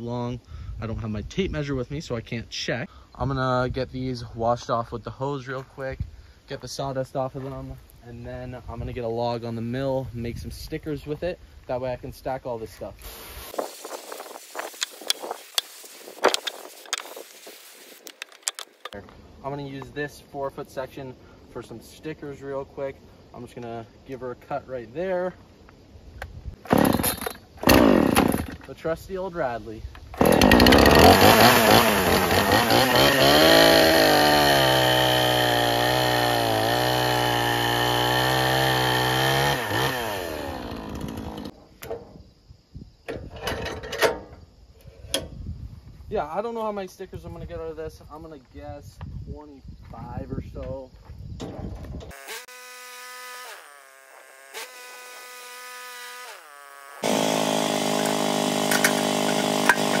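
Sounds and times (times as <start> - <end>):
chainsaw cutting log: 13.0 - 18.7, 26.6 - 28.6, 30.2 - 41.6, 52.1 - 60.0
gas engine running: 57.0 - 60.0.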